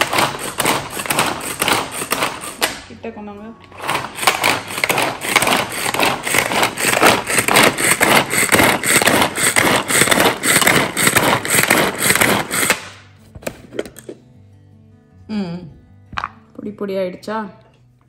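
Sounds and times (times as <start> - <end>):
manual food chopper pull cord: 0.0 - 2.8, 3.6 - 13.0
blades whirring and chopping: 3.8 - 12.8.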